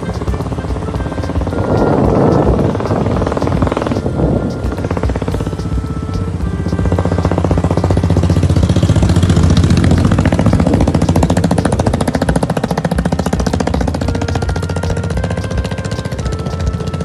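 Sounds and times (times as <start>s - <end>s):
motorbike engine climbing a hill: 0.0s - 17.0s.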